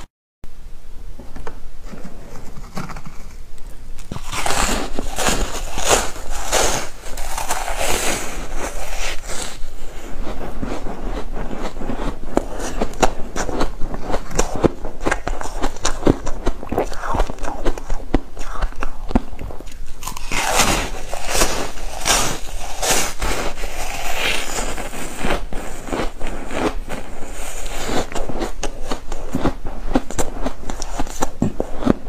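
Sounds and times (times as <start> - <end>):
crunching bites into ice: 4.0 - 8.4, 19.7 - 24.6
chewing crackling ice: 4.0 - 32.0.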